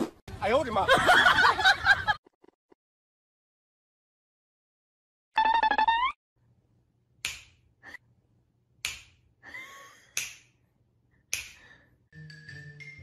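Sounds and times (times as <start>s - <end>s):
fingers snapping: 7.2s - 7.6s, 8.8s - 9.2s, 10.1s - 10.6s, 11.3s - 11.7s.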